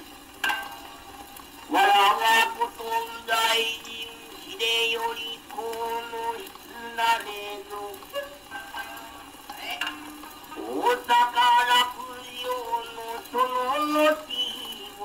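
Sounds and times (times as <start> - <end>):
record surface hiss: 0.0 - 15.0
plucked string attacks: 0.4 - 1.0.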